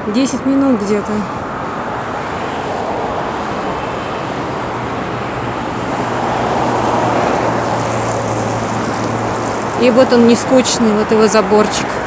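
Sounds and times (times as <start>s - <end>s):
passing cars: 0.0s - 12.0s.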